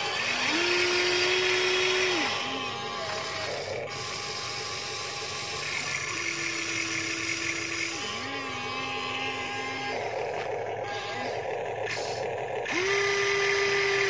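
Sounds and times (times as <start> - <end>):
toy electric motors whining: 0.0 - 14.0.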